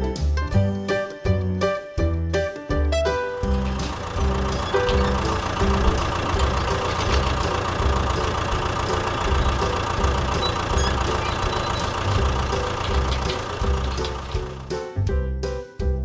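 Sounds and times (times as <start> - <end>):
background music with bass line: 0.0 - 6.8, 7.8 - 16.0
combine harvester engine running: 3.0 - 15.2.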